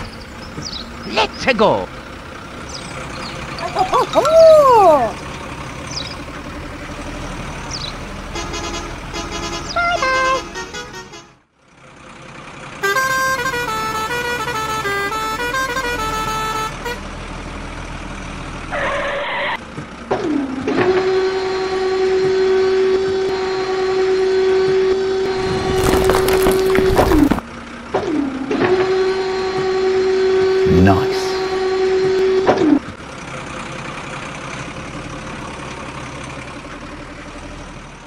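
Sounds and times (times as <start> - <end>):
steady horn-like tone: 28.8 - 32.5.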